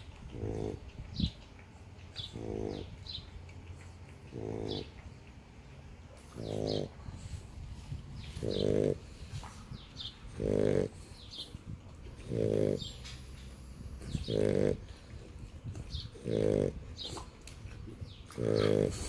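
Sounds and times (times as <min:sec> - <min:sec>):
dog snoring: 0:00.3 - 0:00.8, 0:02.3 - 0:02.9, 0:04.3 - 0:04.9, 0:06.4 - 0:07.0, 0:08.4 - 0:09.1, 0:10.3 - 0:11.1, 0:12.2 - 0:15.0, 0:16.1 - 0:17.1, 0:18.4 - 0:19.0.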